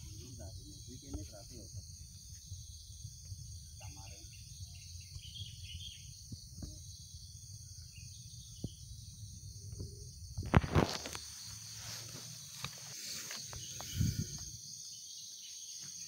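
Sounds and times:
insects chirping: 0.0s - 16.0s
low wind rumble: 13.6s - 14.7s.

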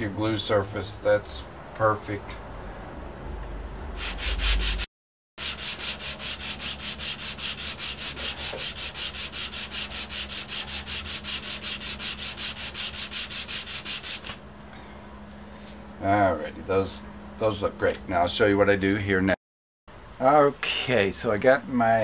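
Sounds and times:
wood rubbing on sandpaper: 4.0s - 14.4s.

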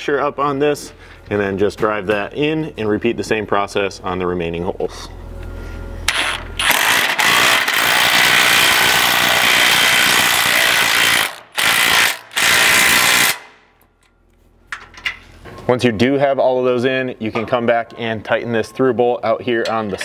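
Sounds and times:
impact wrench hammering bolt: 6.1s - 13.6s.

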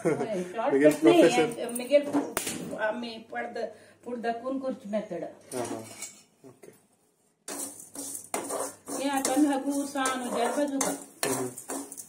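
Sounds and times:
metal spoon scraping a pan: 7.4s - 12.0s.

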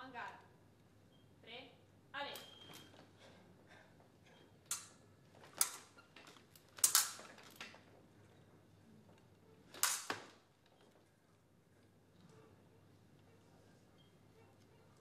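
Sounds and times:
sabre blades clashing: 9.8s - 10.4s.

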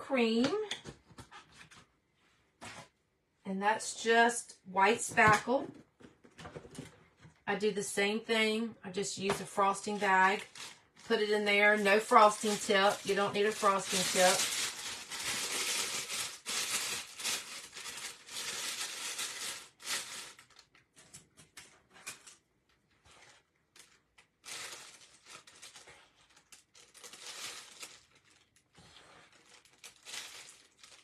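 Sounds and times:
plastic bag crinkling: 9.7s - 20.9s, 23.1s - 31.0s.

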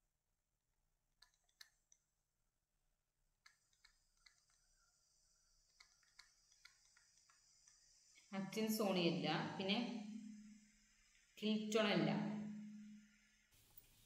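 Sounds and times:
faint high hiss: 4.0s - 14.0s.

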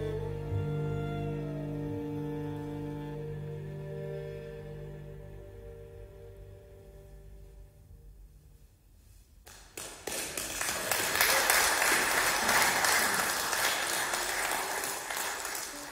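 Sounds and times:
string ensemble chord: 0.0s - 8.5s
audience applause: 9.5s - 15.9s.

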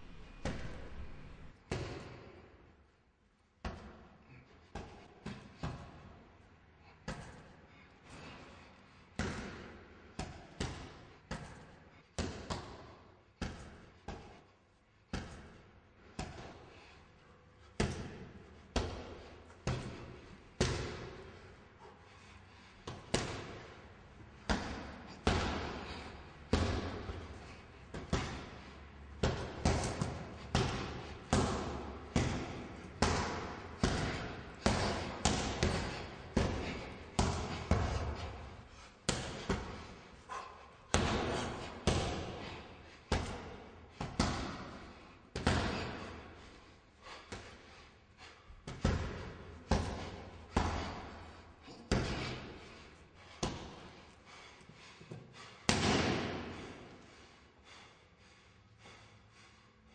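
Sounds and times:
punches thudding on heavy bag: 29.2s - 39.9s, 40.9s - 44.8s, 55.7s - 56.6s.

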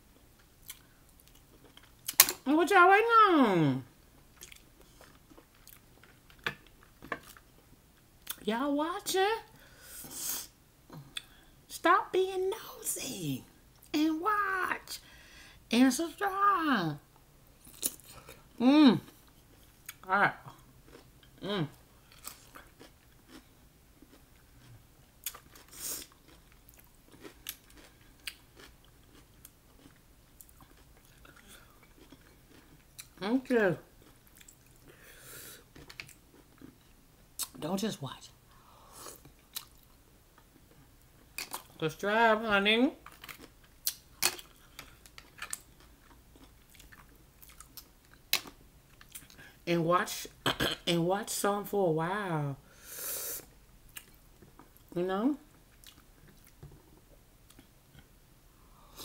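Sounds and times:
soft chewing: 0.1s - 2.2s, 4.2s - 8.4s, 17.4s - 33.2s, 33.9s - 37.6s, 38.5s - 41.8s, 43.0s - 49.6s, 53.8s - 58.1s
close chewing: 22.1s - 33.2s, 43.1s - 49.4s.

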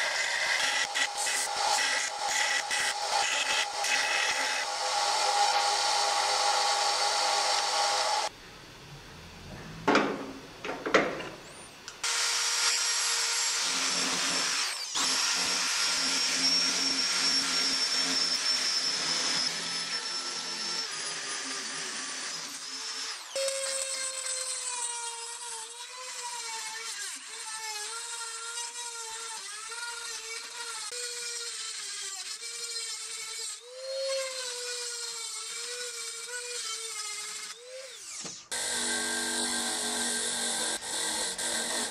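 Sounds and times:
power drill running: 0.0s - 8.3s, 12.0s - 41.9s
rotary tool whining and grinding: 0.0s - 8.3s, 11.5s - 41.9s.

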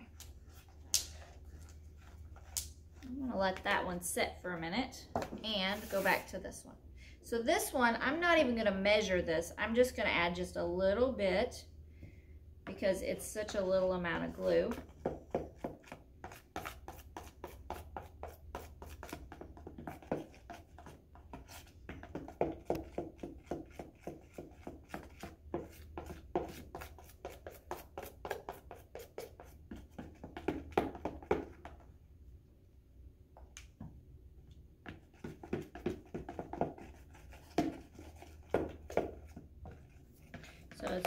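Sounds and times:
utensil stirring slime in plastic bowl: 12.7s - 31.9s, 34.8s - 41.0s.

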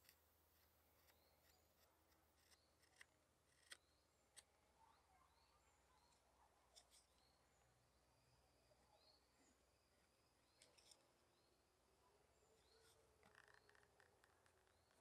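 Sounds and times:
hook knife cutting wood shavings: 0.0s - 3.8s
faint bird chirps: 0.0s - 15.0s.

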